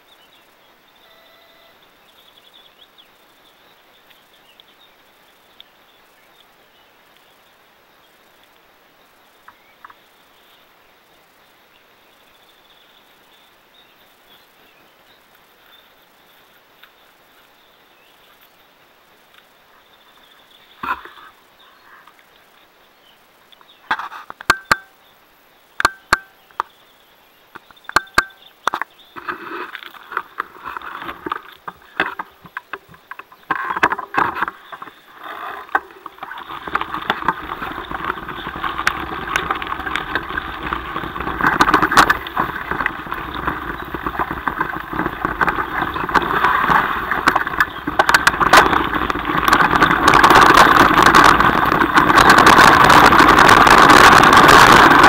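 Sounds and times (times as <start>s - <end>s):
bike clicks and knocks: 23.9s - 24.9s, 25.8s - 26.7s, 27.6s - 28.9s, 29.8s - 55.0s
wind noise on microphone: 29.2s - 55.0s
tyre rumble on gravel: 29.3s - 55.0s.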